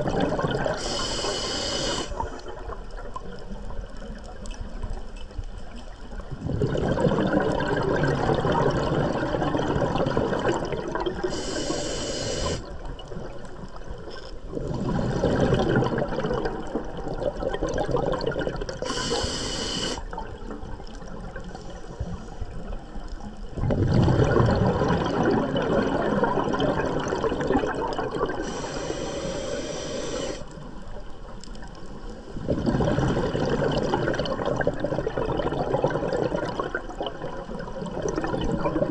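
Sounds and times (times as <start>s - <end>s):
bubbling exhalations underwater: 0.0s - 0.9s, 6.4s - 11.6s, 14.5s - 19.2s, 23.6s - 28.7s, 32.4s - 38.9s
regulator air hiss: 0.8s - 2.2s, 11.3s - 12.7s, 18.8s - 20.0s, 28.4s - 30.5s.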